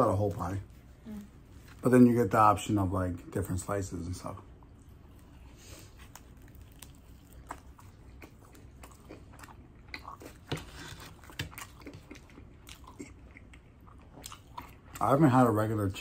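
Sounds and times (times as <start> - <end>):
person chewing crunchy pizza: 4.4 - 15.8.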